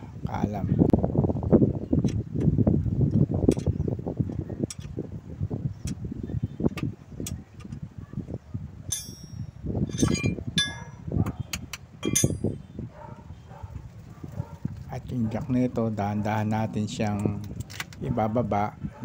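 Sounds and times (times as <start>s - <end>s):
wrench clinking on metal: 8.9s - 10.9s, 12.0s - 12.6s.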